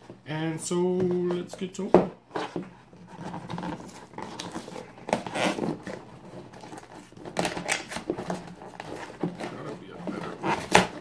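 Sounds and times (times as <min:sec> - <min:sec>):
cardboard box being torn open: 0:07.3 - 0:11.0.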